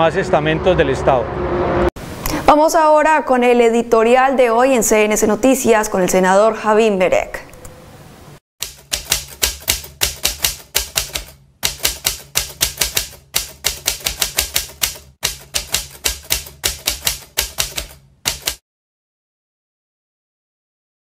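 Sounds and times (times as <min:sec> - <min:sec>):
typewriter keys clacking: 0:08.6 - 0:18.6.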